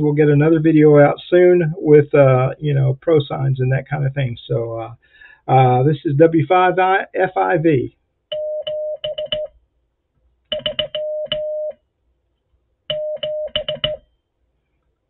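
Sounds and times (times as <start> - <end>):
morse code beeping: 8.3 - 9.5, 10.5 - 11.8, 12.9 - 14.0.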